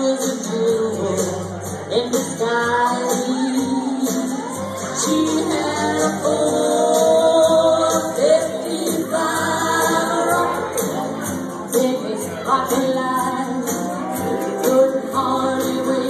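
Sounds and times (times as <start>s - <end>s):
amplified backing music: 0.0s - 16.0s
woman singing into microphone: 0.0s - 16.0s.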